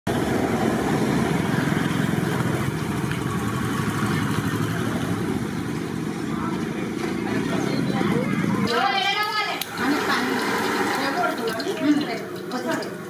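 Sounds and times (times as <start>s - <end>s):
street traffic: 0.0s - 13.0s
small engine pulsing: 0.1s - 8.7s.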